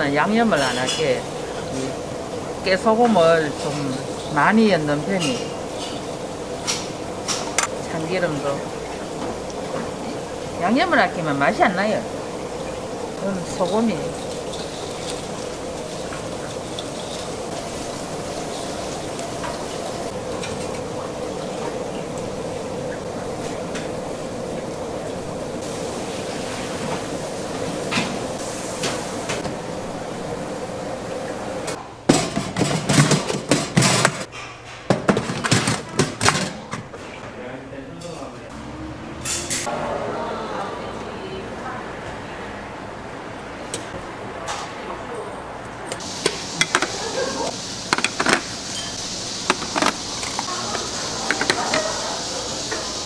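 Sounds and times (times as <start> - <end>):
kitchen background noise: 0.0 - 53.0
kitchen utensils clattering: 0.1 - 2.0, 2.8 - 25.1, 31.6 - 37.2, 39.2 - 39.8, 46.0 - 53.0
steady hiss: 46.0 - 53.0.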